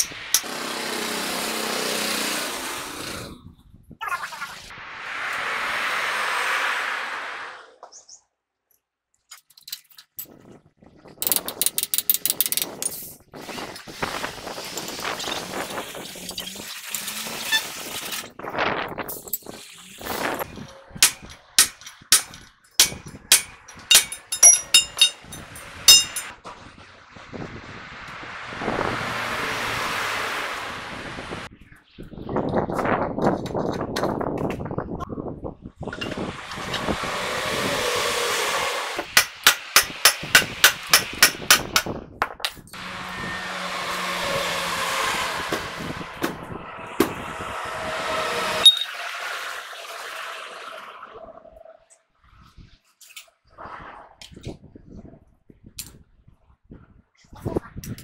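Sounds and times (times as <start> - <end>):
metal-on-metal clanks: 20.5 - 26.4
hammer blows on metal: 21.0 - 26.3
sharp metal knock: 21.0 - 26.3.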